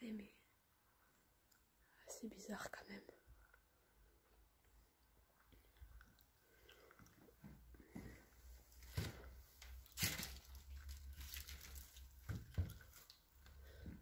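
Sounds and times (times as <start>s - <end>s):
footsteps crunching on debris: 8.8s - 14.0s.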